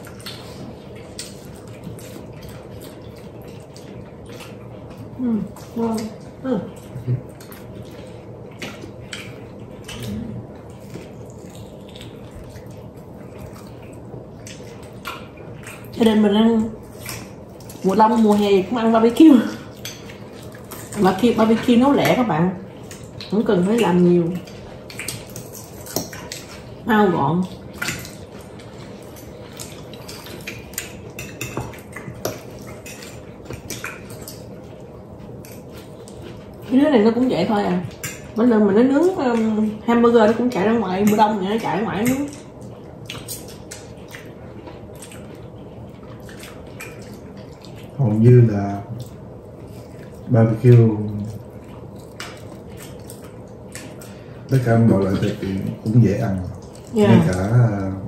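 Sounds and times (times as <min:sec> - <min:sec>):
chewing: 0:00.0 - 0:58.0
low room hum: 0:00.0 - 0:58.0
cutlery clicking on plates: 0:30.2 - 0:33.9.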